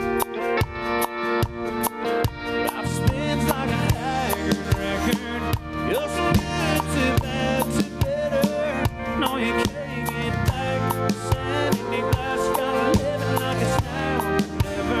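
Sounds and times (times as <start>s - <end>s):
country band playing: 0.0s - 15.0s
drum kit beat: 0.0s - 15.0s.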